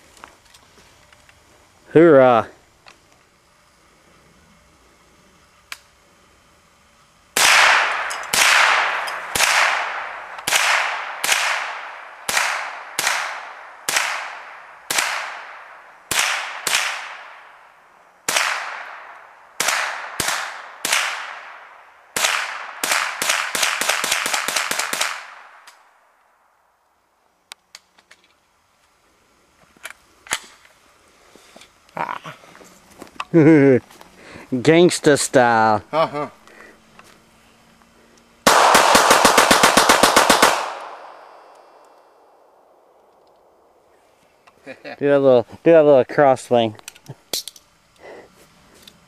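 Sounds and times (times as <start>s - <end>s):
rifle shots: 7.4s - 17.7s, 18.3s - 25.7s, 38.4s - 43.7s.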